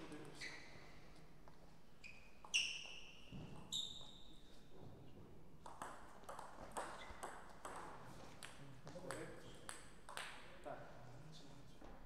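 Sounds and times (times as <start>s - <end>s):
table tennis ball bouncing: 5.6s - 10.4s.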